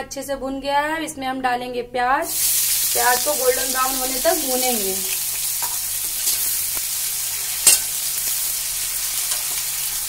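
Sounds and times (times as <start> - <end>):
onions sizzling in hot oil: 2.3 - 10.0
metal spatula stirring: 5.6 - 6.6, 7.6 - 8.1, 9.2 - 10.0.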